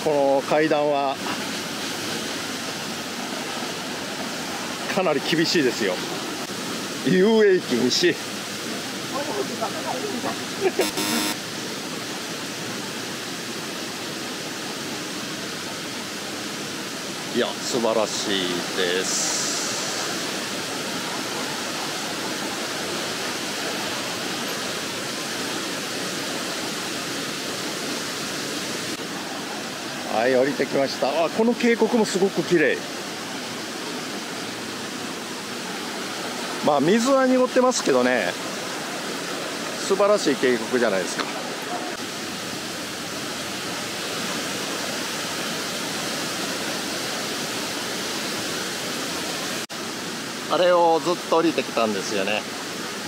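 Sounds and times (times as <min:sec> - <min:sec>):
waterfall roaring: 0:00.0 - 0:53.0.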